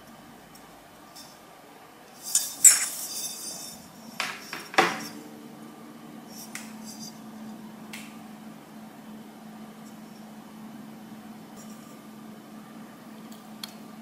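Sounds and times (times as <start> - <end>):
stoneware dishes clinking: 2.6 - 3.1.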